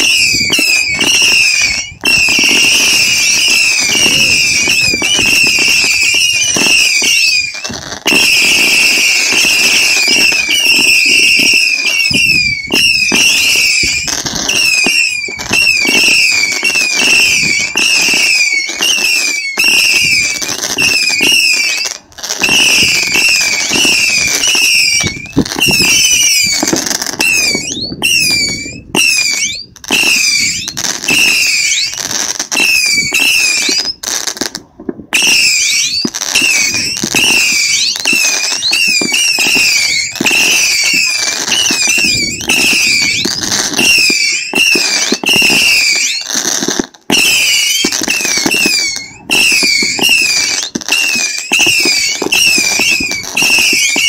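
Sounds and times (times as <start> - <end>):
whistling firework rockets: 0.0 - 54.0
crackling pops: 34.5 - 45.6.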